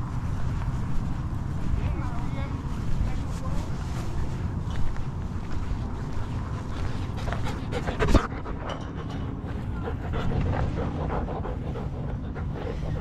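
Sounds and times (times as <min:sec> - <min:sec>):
low rumble: 0:00.0 - 0:13.0
dog panting: 0:06.2 - 0:13.0.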